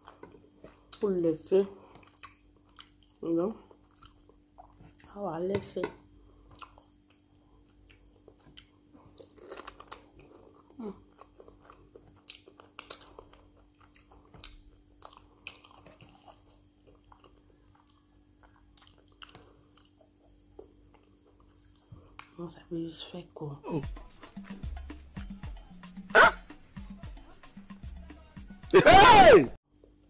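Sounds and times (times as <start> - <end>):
person chewing food: 0.0 - 1.1, 1.8 - 5.2, 6.1 - 22.4.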